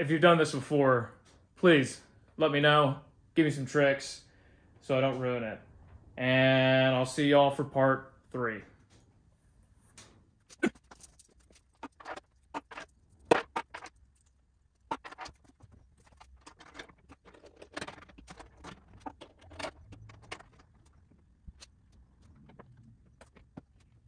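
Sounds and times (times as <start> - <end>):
clicks knocks and scrapes of mast: 10.8 - 24.0.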